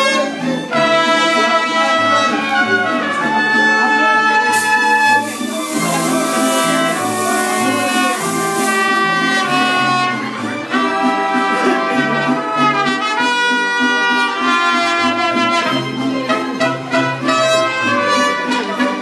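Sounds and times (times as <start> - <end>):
guitars: 0.0 - 19.0
trumpets playing melody: 0.0 - 19.0.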